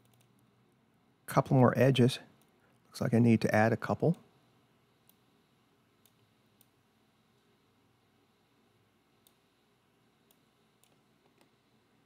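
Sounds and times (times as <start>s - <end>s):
computer mouse clicks: 0.0s - 0.4s, 5.0s - 5.2s, 6.0s - 6.8s, 9.2s - 9.4s, 10.2s - 11.6s
low room hiss: 0.0s - 12.0s.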